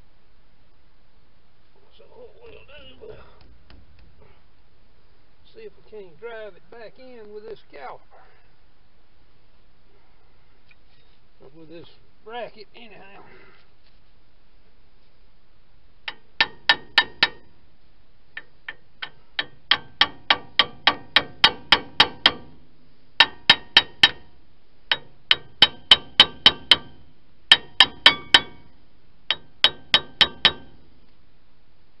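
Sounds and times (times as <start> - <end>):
metal-on-metal tapping: 16.1 - 17.6, 18.3 - 30.9.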